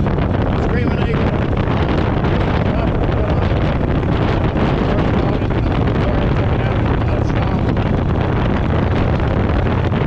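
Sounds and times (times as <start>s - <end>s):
motorcycle engine running: 0.0s - 10.0s
wind rushing over microphone: 0.0s - 10.0s.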